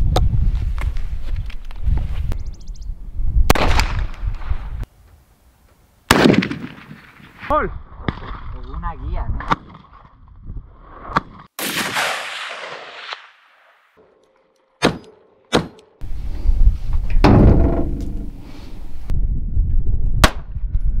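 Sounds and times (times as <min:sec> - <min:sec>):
gunshots: 0:03.5 - 0:04.1, 0:06.1 - 0:07.4, 0:11.6 - 0:13.9.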